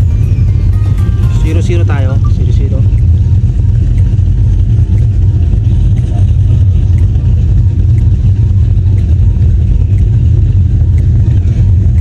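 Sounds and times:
faint tick: 0:03.9 - 0:12.0.

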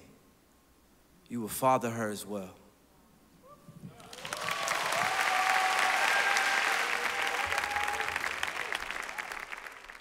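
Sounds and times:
audience applauding and cheering: 0:03.9 - 0:10.0.

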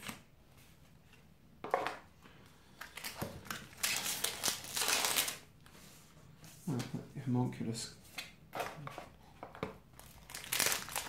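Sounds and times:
foil wrapper crinkling: 0:02.8 - 0:05.4, 0:10.0 - 0:11.0.

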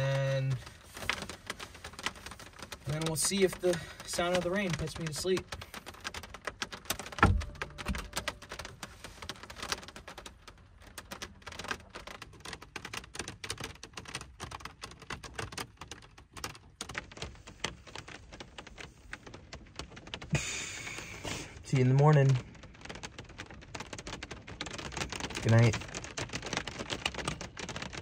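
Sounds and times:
rain ticking on truck cap: 0:00.0 - 0:28.0
dull thump: 0:07.1 - 0:08.5.

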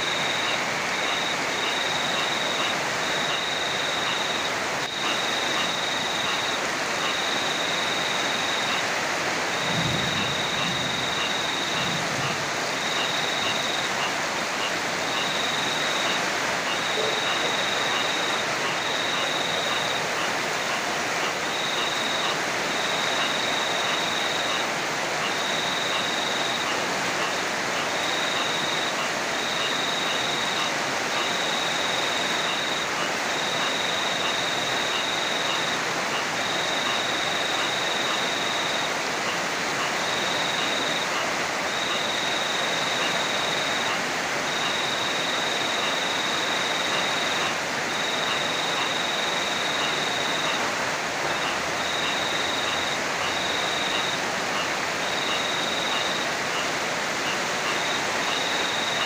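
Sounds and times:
heavy rain falling: 0:00.0 - 0:59.0
low rumble of thunder: 0:09.6 - 0:12.6.

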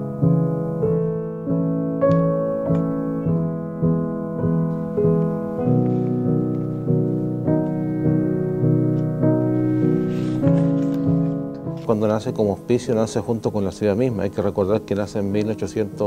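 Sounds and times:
slow piano music: 0:00.0 - 0:16.0.

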